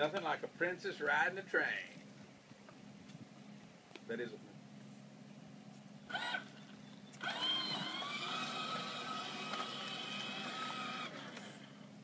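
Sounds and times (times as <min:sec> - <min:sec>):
toy train motor whining: 0:06.1 - 0:06.5, 0:07.2 - 0:11.8.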